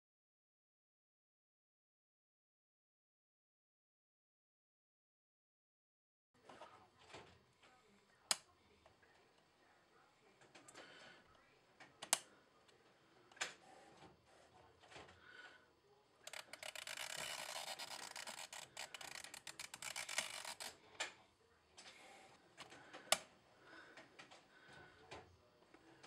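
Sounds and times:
dial ratcheting rasp: 0:16.3 - 0:20.7.

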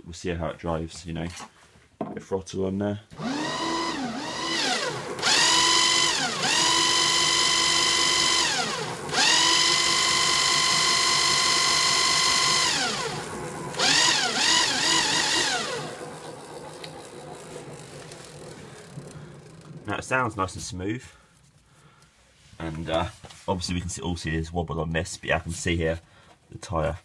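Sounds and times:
electric motor whining: 0:03.2 - 0:19.9.

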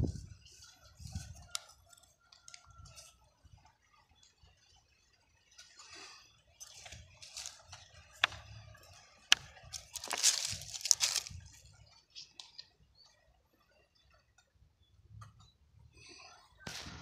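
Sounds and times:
rustling and scraping debris: 0:05.6 - 0:12.7
stones knocking: 0:06.8 - 0:08.5, 0:09.2 - 0:11.4.

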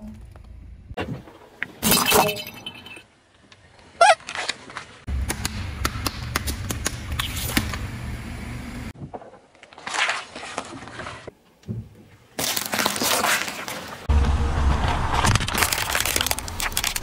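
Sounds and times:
low tyre rumble: 0:14.1 - 0:17.0
plastic pieces cracking under tyre: 0:15.1 - 0:17.0.

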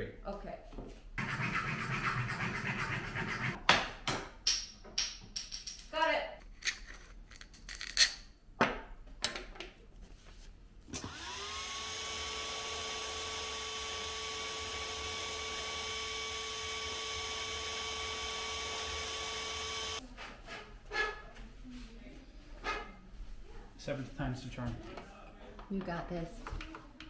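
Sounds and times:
heat gun fan whine: 0:10.9 - 0:20.0.

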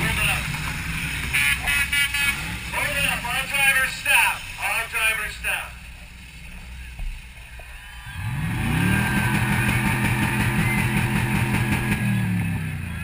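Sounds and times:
car engine revving: 0:07.8 - 0:13.0.

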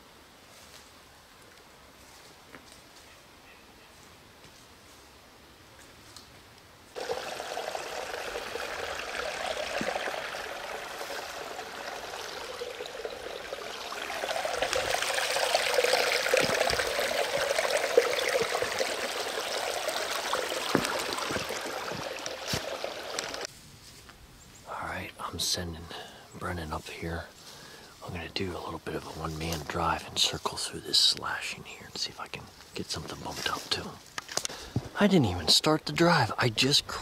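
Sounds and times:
creek trickling over stones: 0:06.9 - 0:23.5, 0:26.4 - 0:37.0.

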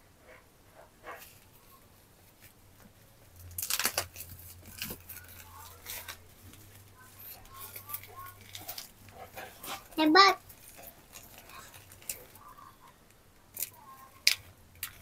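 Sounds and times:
plastic wrapping crinkling and tearing: 0:03.3 - 0:15.0.

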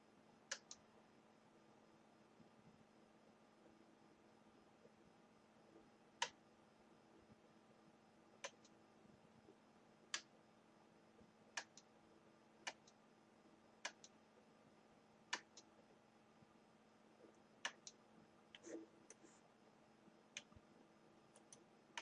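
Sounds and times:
computer mouse clicks: 0:00.5 - 0:00.8, 0:06.2 - 0:06.4, 0:08.4 - 0:08.8, 0:11.6 - 0:11.9, 0:12.6 - 0:13.0, 0:13.8 - 0:14.2, 0:15.3 - 0:15.7, 0:17.6 - 0:18.0.

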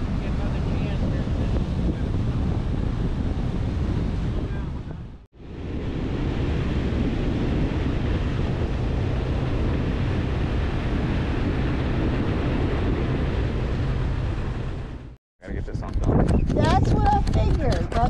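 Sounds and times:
wind buffeting microphone: 0:00.0 - 0:18.0
low engine drone: 0:04.5 - 0:16.0
water rushing past hull: 0:05.4 - 0:15.2.

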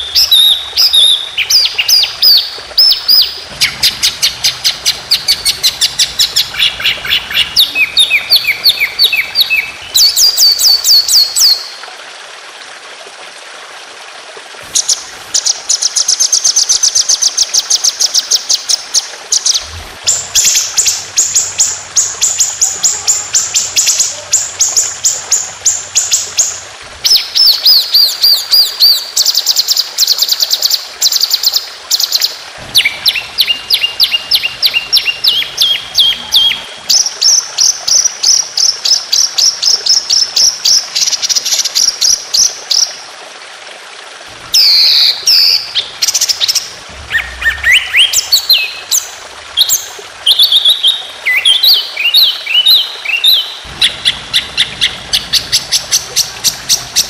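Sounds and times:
songbird singing fast trills: 0:00.0 - 0:11.7.

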